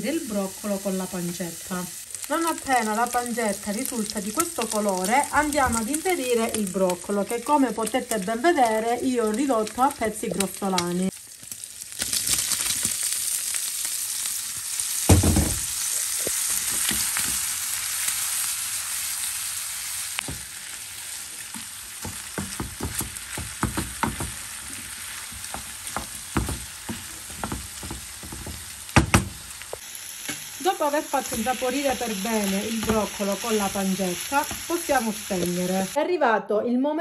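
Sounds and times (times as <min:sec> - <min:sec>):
food sizzling in a pan: 0:00.0 - 0:36.0
thump in pan: 0:15.1 - 0:15.8, 0:27.3 - 0:29.4
wooden spoon scraping a pan: 0:21.4 - 0:28.8.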